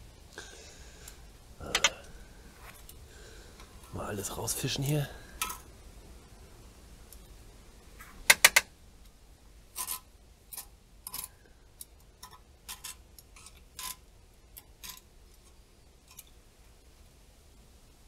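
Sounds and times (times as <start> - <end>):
sharp clicks: 8.3 - 8.7.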